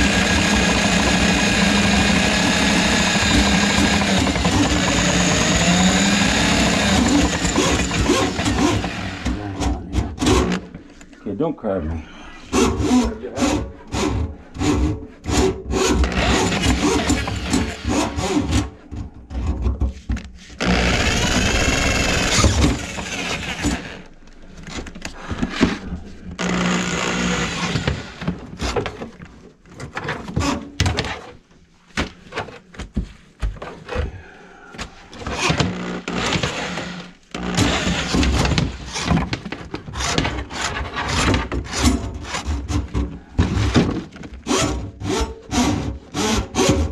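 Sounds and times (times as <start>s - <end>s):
drain auger motor whirring: 0.0s - 9.4s, 15.8s - 18.6s, 20.6s - 24.1s, 26.4s - 28.5s, 35.2s - 39.2s.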